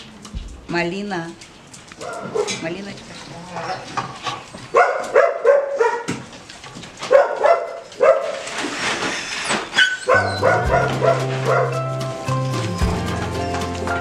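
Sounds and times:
dogs barking and yipping: 0:02.0 - 0:02.6, 0:03.6 - 0:08.7, 0:09.5 - 0:14.0
background music: 0:10.2 - 0:14.0.

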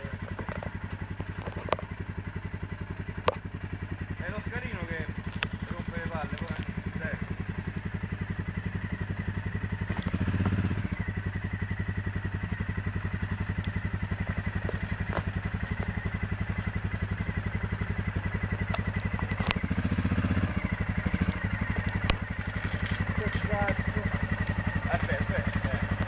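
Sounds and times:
atv engine running: 0:00.0 - 0:26.0
sharp clicks: 0:21.1 - 0:24.7.

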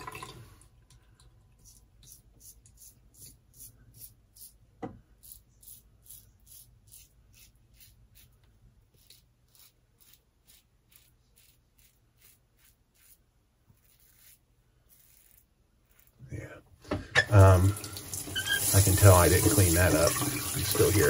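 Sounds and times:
razor scraping stubble: 0:01.6 - 0:16.4.

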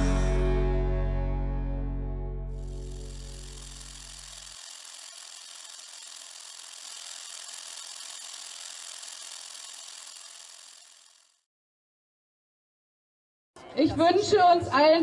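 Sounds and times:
music bass: 0:00.0 - 0:03.5.

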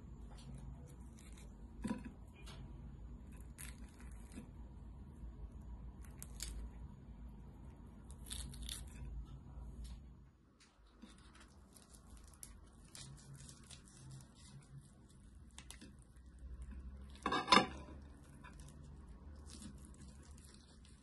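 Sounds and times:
crisp chicken skin tearing: 0:06.0 - 0:06.8, 0:08.0 - 0:09.1, 0:10.9 - 0:16.6, 0:18.0 - 0:21.0.

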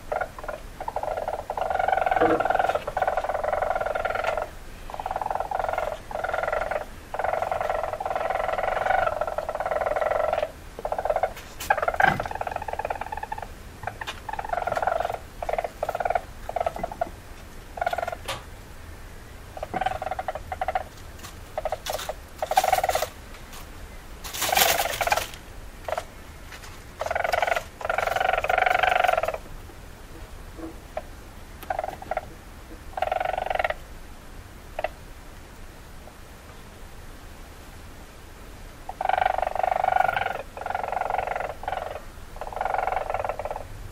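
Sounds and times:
sharp high weasel calls: 0:00.1 - 0:17.2, 0:27.0 - 0:29.5, 0:38.9 - 0:43.6
weasel trilling and chattering: 0:00.1 - 0:18.4, 0:19.6 - 0:23.2, 0:24.3 - 0:26.1, 0:27.0 - 0:29.5, 0:31.0 - 0:32.3, 0:32.9 - 0:33.8, 0:38.9 - 0:43.6.

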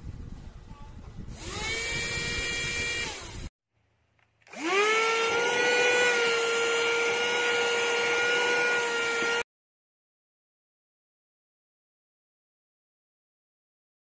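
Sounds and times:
handheld vacuum motor whine: 0:01.3 - 0:03.5, 0:04.5 - 0:09.5.

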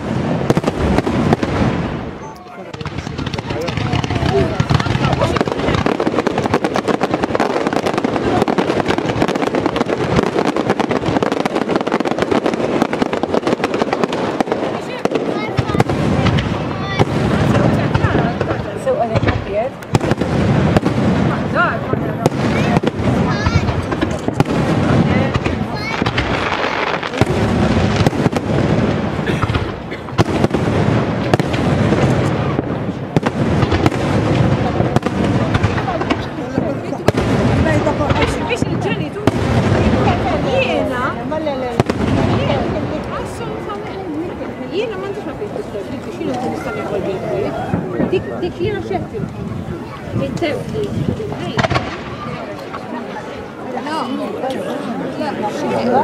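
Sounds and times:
fireworks crackle and bangs: 0:00.0 - 0:56.0.

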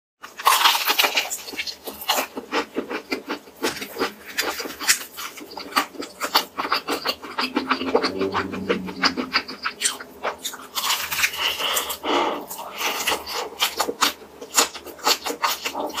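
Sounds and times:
crunchy chewing: 0:00.2 - 0:08.6, 0:09.4 - 0:16.0.

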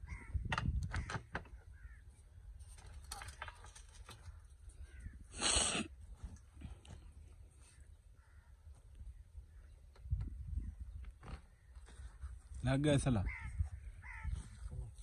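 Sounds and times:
sharp clicks and knocks: 0:00.4 - 0:01.6.

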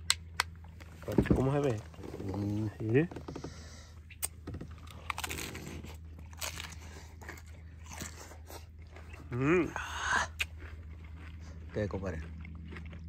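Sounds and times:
crunchy chewing: 0:03.5 - 0:13.0.

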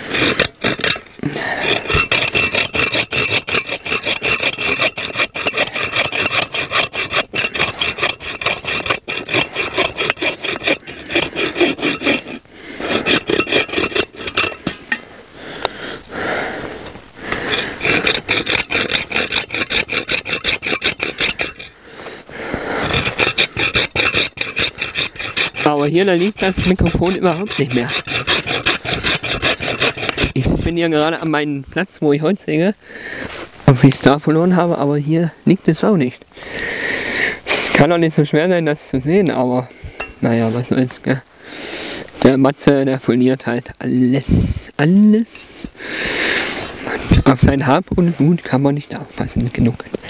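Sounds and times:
hand saw cutting wood: 0:00.0 - 0:31.4, 0:45.4 - 0:50.0.

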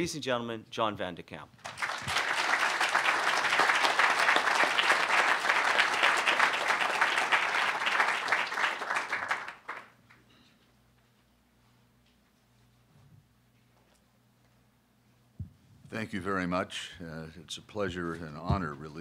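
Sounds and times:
audience applauding: 0:01.6 - 0:10.0.

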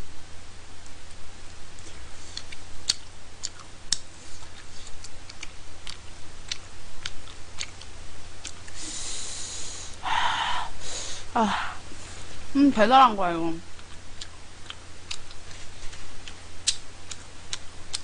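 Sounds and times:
low steady hum: 0:00.0 - 0:18.0
wet chewing mouth clicks: 0:01.8 - 0:08.8, 0:13.7 - 0:18.0
short breathy hiss: 0:08.7 - 0:11.3.

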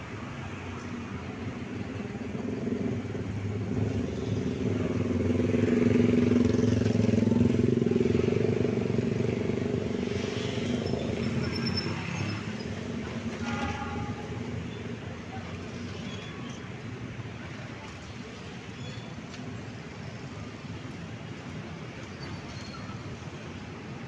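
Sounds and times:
diesel locomotive engine rumbling: 0:10.8 - 0:17.9.

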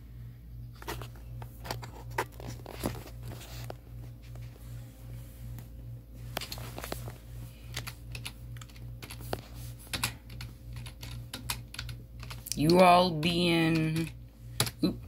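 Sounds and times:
steady low hum: 0:00.0 - 0:15.0
keyboard keys clicking: 0:07.7 - 0:12.8.

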